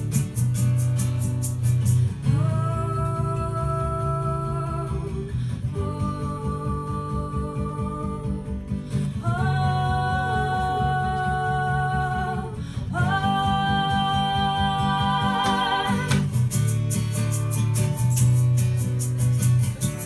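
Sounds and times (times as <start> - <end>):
acoustic guitar strumming: 0.0 - 20.0
woman singing: 2.2 - 16.4.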